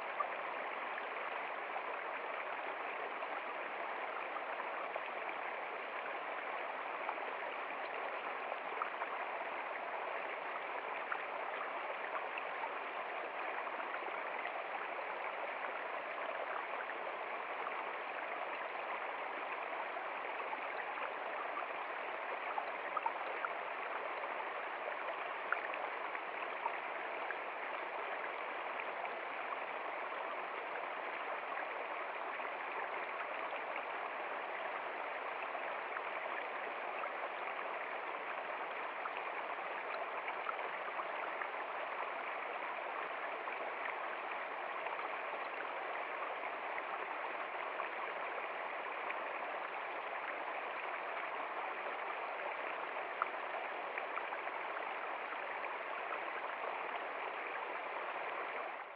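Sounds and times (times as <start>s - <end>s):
stream rushing over stones: 0.0s - 58.9s.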